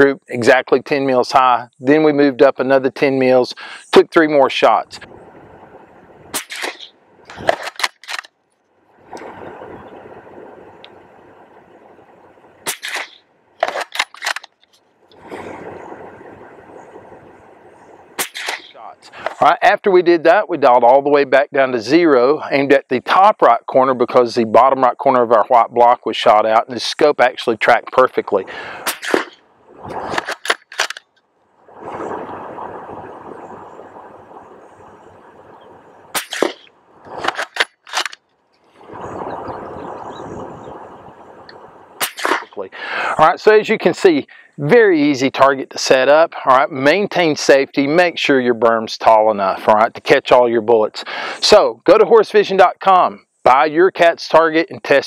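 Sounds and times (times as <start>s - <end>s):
wind noise: 3.6s - 8.2s, 8.9s - 14.4s, 15.1s - 19.6s, 28.3s - 30.9s, 31.6s - 43.9s
rifle shots cracking: 6.3s - 8.3s, 12.6s - 14.6s, 18.2s - 18.8s, 28.8s - 29.4s, 30.0s - 31.0s, 36.1s - 38.2s, 42.0s - 42.6s
sharp cracks: 6.3s - 10.0s, 12.6s - 16.0s, 17.9s - 19.5s, 28.6s - 35.1s, 36.0s - 38.8s, 41.5s - 42.7s.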